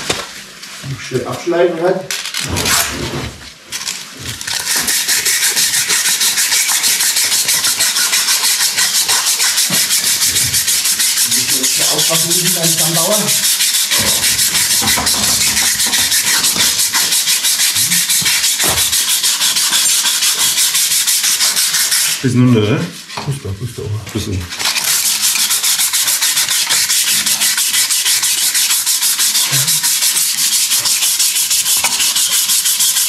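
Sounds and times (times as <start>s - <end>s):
abrasive cloth rasping on steel: 4.3s - 22.2s, 24.5s - 33.0s.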